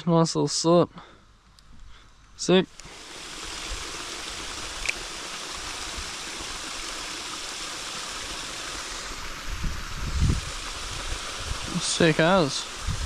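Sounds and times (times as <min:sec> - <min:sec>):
river water rushing: 0:02.8 - 0:13.0.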